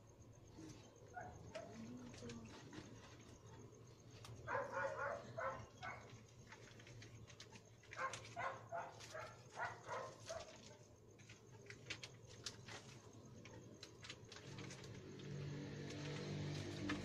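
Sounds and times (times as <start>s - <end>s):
dog barking: 1.1s - 1.8s, 4.4s - 6.1s, 8.0s - 10.7s.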